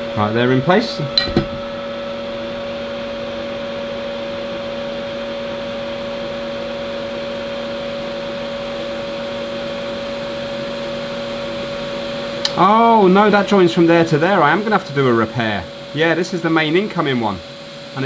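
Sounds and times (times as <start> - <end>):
airy blower hiss: 6.8 - 18.0.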